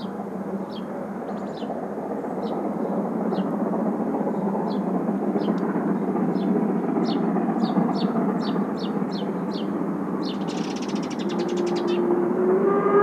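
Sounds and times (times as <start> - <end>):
bird chirping: 0.0 - 3.5, 6.4 - 12.2
distant steam locomotive rumbling: 0.0 - 13.0
locomotive whistle: 12.2 - 13.0.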